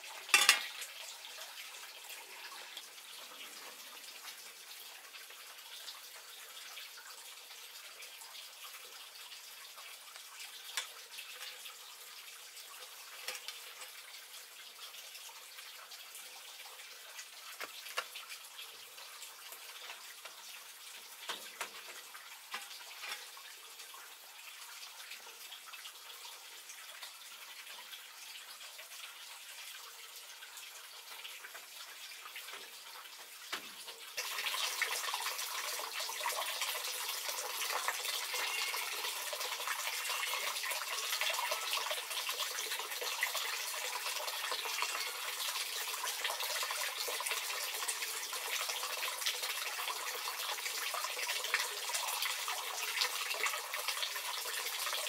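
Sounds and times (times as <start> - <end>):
water running: 0.0 - 55.0.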